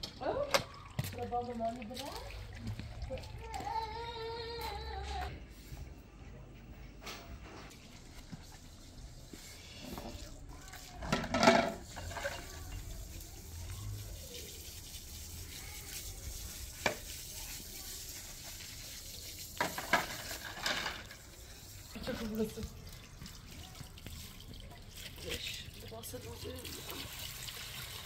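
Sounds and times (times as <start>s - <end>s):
faint running water: 0.0s - 4.9s, 7.7s - 28.0s
dishes clinking and clattering: 11.0s - 12.8s, 19.6s - 21.3s.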